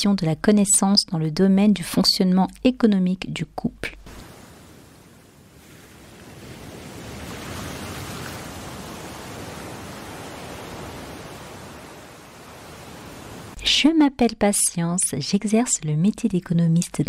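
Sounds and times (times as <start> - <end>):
steady hiss-like noise: 4.0 - 6.8, 8.8 - 13.6.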